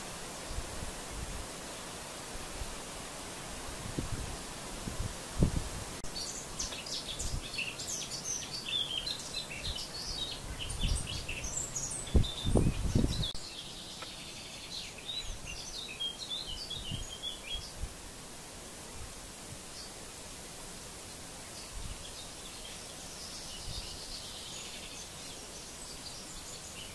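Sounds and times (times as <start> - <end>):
steady outdoor noise: 0.0 - 26.9
small birds twittering: 6.0 - 17.8, 18.8 - 20.0, 21.4 - 26.9.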